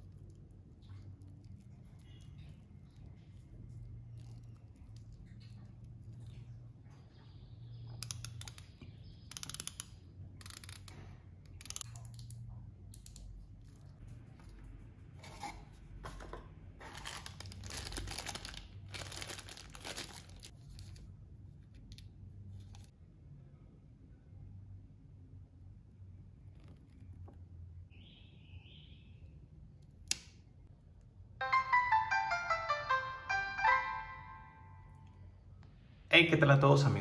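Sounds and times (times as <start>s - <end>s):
plastic crinkling: 16.8s - 21.1s.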